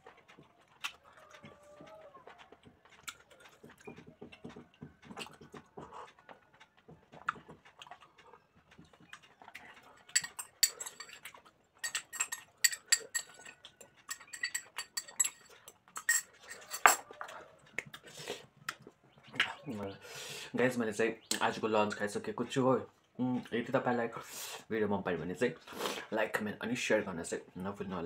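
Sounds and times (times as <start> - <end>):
mouth chewing sounds: 0.0 - 20.5
spoon clinking against glass bowl: 10.0 - 17.0.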